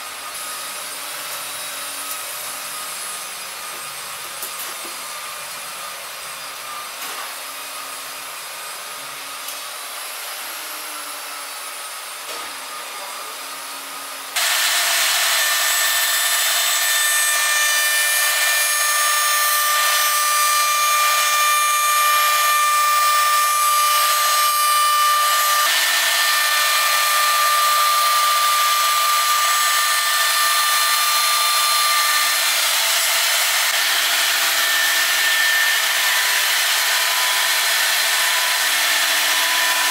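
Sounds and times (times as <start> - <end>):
router spindle whining: 0.0 - 39.9.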